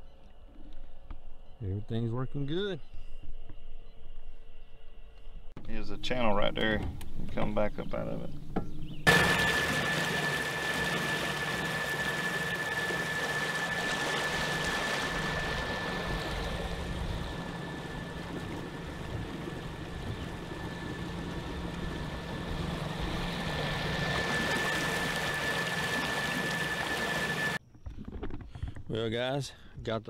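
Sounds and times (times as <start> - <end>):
low hum: 2.8 - 28.0
electric motor high-pitched whine: 9.1 - 27.6
water rushing in boat wake: 9.1 - 27.6.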